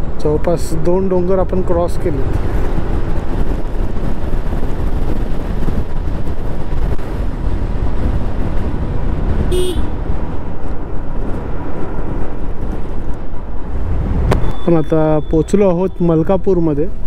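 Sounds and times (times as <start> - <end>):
wind and road noise: 0.0 - 17.0
scooter horn beep: 9.5 - 9.9.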